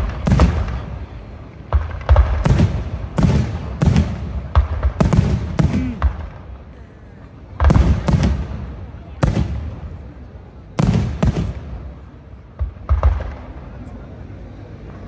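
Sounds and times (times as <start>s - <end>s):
firework bangs with rumbling echo: 0.0s - 6.6s, 7.5s - 13.8s.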